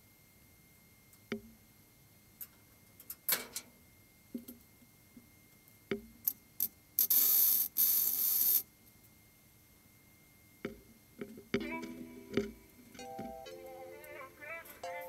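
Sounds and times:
welder crackling: 7.0 - 8.6.

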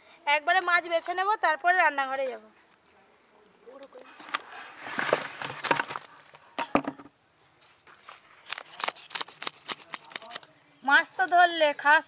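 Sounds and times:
fish handled on sandy ground: 3.8 - 12.0
knife scraping fish scales: 8.4 - 10.4.

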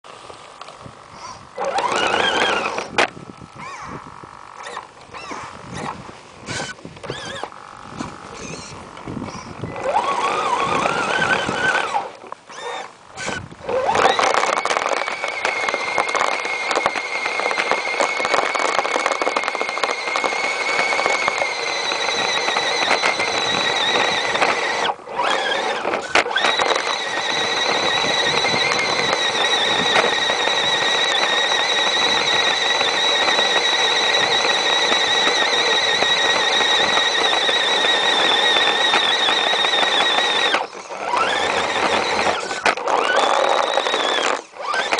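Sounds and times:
electric motor whine: 0.1 - 44.9.

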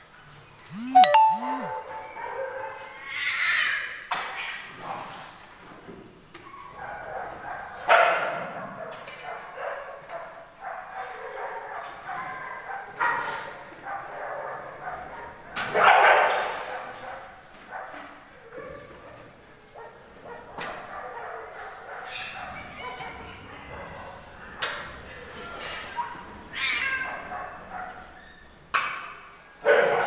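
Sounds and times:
dogs barking and yipping: 6.4 - 19.0, 19.8 - 24.2, 27.0 - 28.5.

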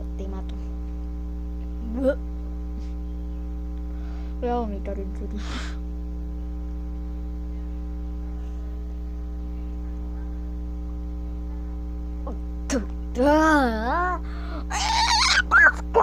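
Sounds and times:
electrical mains hum: 0.0 - 16.0
girl groaning in disgust: 13.5 - 15.8.

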